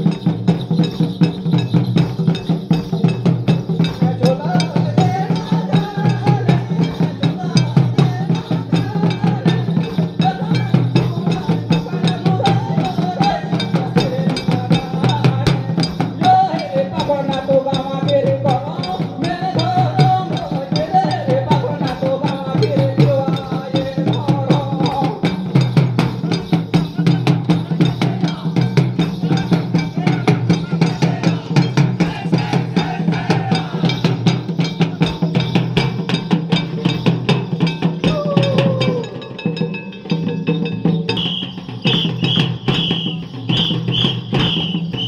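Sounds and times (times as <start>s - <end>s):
hand drums fast rhythm: 0.0s - 45.0s
wavering melody: 33.8s - 45.0s.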